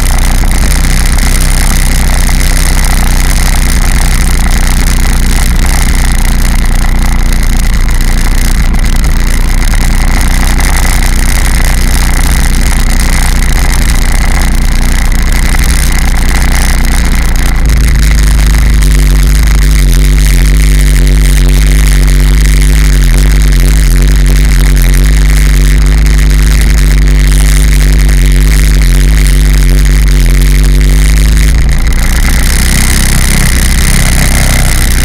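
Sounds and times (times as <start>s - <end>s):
watercraft engine running: 0.0s - 35.0s.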